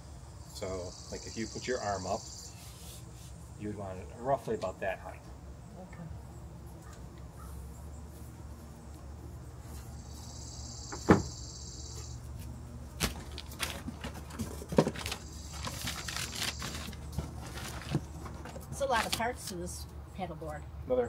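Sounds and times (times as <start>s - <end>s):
hands rustling cardboard and wrapping: 12.4s - 19.6s.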